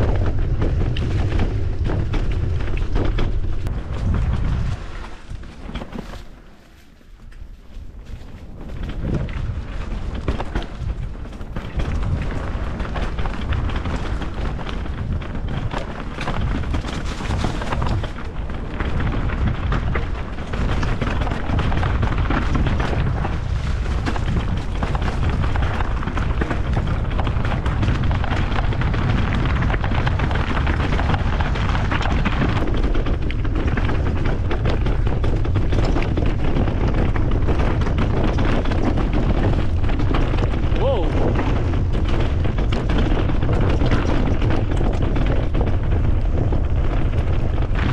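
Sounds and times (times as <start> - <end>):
bike rattling over bumps: 0.0 - 47.9
wind buffeting microphone: 0.0 - 47.9.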